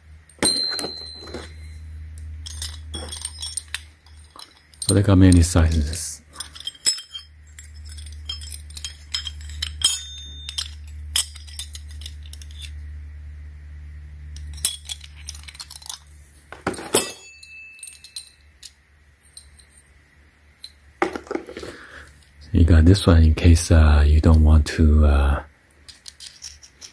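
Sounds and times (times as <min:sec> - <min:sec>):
low steady hum: 0:00.0 - 0:26.9
metal hole saws clinking: 0:00.3 - 0:01.8, 0:02.4 - 0:12.8, 0:14.4 - 0:19.9.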